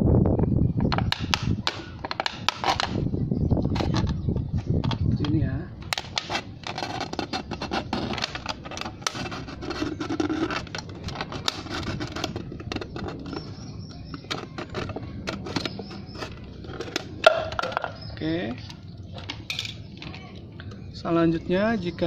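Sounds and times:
sharp plastic clicks: 0:00.9 - 0:03.0
plastic bottle crinkling: 0:05.9 - 0:18.1.

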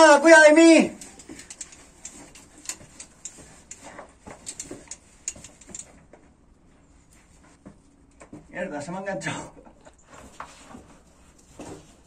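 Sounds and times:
rope rappelling clicks and knocks: 0:01.0 - 0:06.4.

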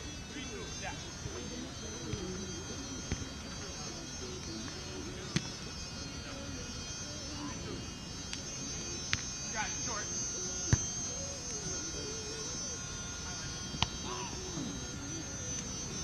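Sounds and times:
faint distant voices: 0:00.0 - 0:16.0
high-pitched buzz: 0:00.0 - 0:16.0.

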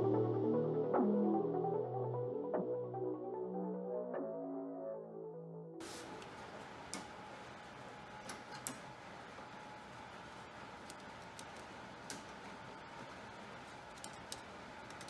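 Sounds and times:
music track: 0:00.0 - 0:05.8
small clicks and ticks: 0:10.8 - 0:12.3.

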